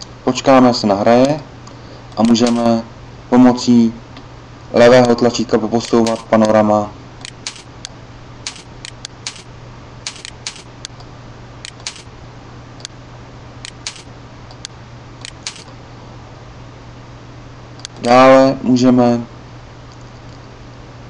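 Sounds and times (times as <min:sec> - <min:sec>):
steady low hum: 0:00.0 - 0:21.0
computer mouse clicking: 0:02.2 - 0:02.6, 0:05.8 - 0:06.5, 0:07.2 - 0:07.7, 0:08.5 - 0:09.5, 0:10.1 - 0:11.0, 0:11.6 - 0:12.1, 0:13.6 - 0:15.7.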